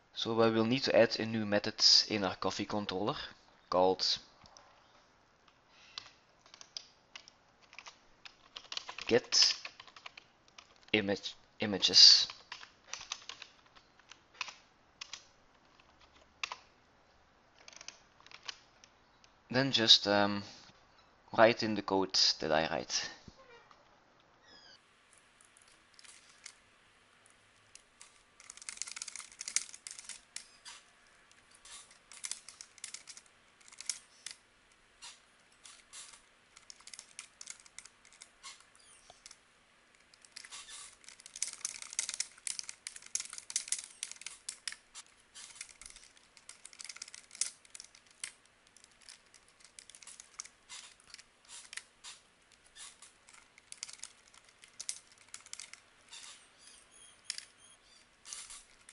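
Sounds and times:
typing on a keyboard: 0:06.0 - 0:10.9, 0:12.2 - 0:16.6, 0:17.6 - 0:18.6, 0:27.8 - 0:34.4, 0:35.7 - 0:39.4, 0:40.1 - 0:44.8, 0:45.4 - 0:51.9, 0:52.8 - 0:55.8.

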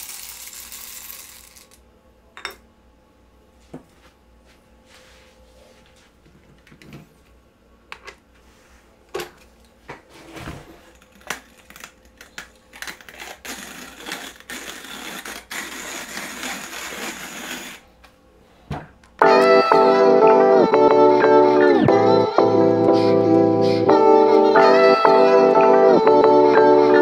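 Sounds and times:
coffee beans grinding: 0:00.0 - 0:01.8, 0:11.0 - 0:17.8.

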